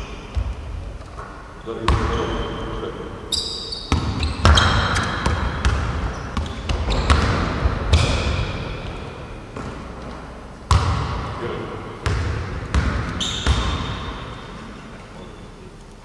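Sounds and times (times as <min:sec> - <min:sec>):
sneakers squeaking on hardwood: 0:00.0 - 0:10.4, 0:12.7 - 0:14.5
basketball bouncing: 0:00.3 - 0:00.8, 0:03.8 - 0:10.1, 0:10.7 - 0:11.4, 0:12.0 - 0:14.4.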